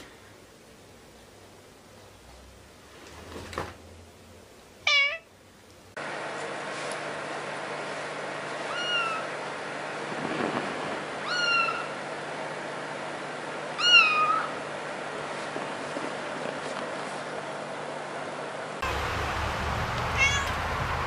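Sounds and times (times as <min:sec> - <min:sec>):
kitten mewing: 0:04.9 - 0:05.3, 0:08.7 - 0:09.3, 0:11.2 - 0:12.0, 0:13.8 - 0:14.6, 0:20.2 - 0:20.6.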